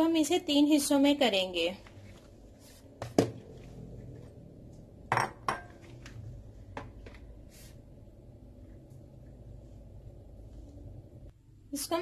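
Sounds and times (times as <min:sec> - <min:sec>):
glass bowl clinking on a counter: 0:05.1 - 0:05.8.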